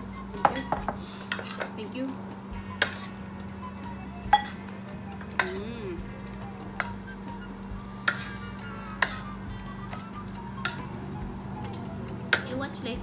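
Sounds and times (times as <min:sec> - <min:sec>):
steady low hum: 0:00.0 - 0:13.0
cutlery clinking on plates: 0:00.4 - 0:01.7, 0:04.3 - 0:04.6, 0:05.4 - 0:05.6, 0:08.0 - 0:08.4, 0:09.0 - 0:09.2.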